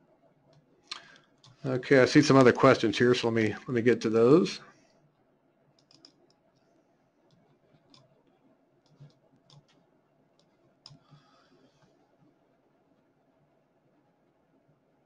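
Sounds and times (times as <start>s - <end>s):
computer keyboard clicks: 5.8s - 6.3s.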